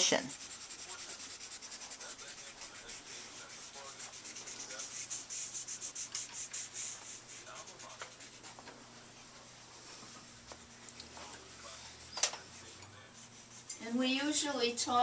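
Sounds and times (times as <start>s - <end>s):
drawing medium scratching on paper: 0.0s - 9.2s, 12.4s - 15.0s.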